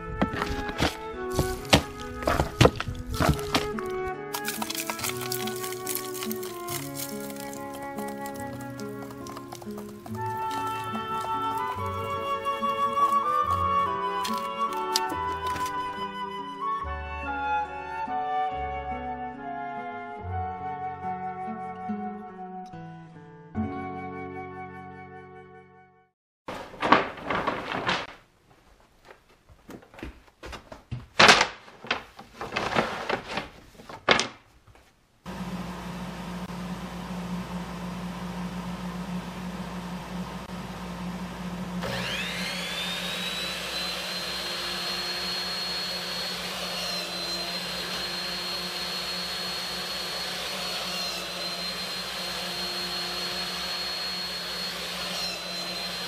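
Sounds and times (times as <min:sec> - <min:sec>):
wooden strips clattering: 0:00.0 - 0:15.9, 0:26.5 - 0:34.9
shop vacuum humming: 0:00.3 - 0:16.1, 0:35.3 - 0:56.0
motor high whine: 0:35.3 - 0:56.0.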